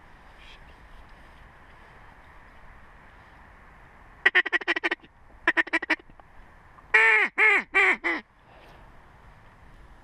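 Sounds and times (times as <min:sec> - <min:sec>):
duck call quacks: 0:04.2 - 0:06.0, 0:06.9 - 0:08.2.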